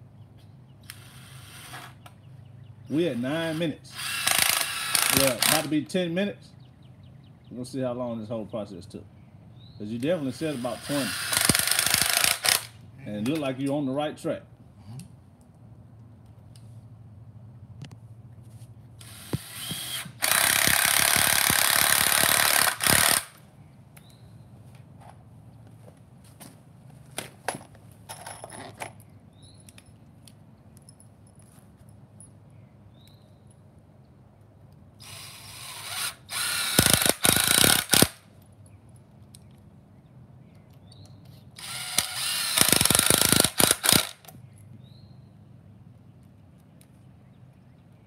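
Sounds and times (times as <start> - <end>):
cordless drill driving screws: 0.8 - 2.0, 3.1 - 5.7, 10.1 - 12.8, 19.0 - 23.4, 35.0 - 38.2, 41.6 - 44.3.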